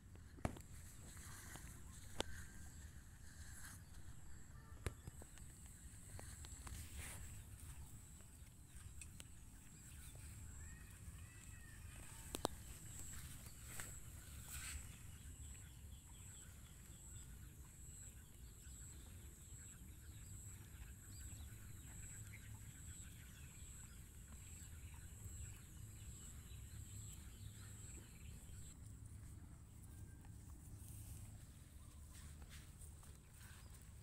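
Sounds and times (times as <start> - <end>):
faint ticks: 8.7 - 10.1.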